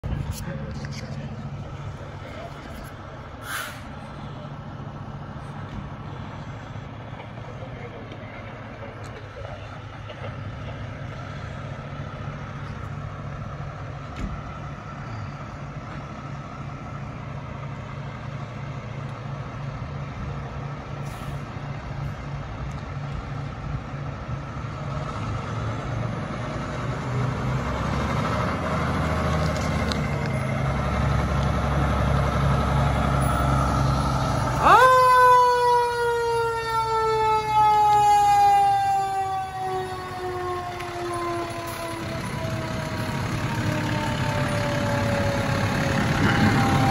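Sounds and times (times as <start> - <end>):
fire engine rumble: 0.0 - 46.9
fire engine siren: 23.9 - 46.9.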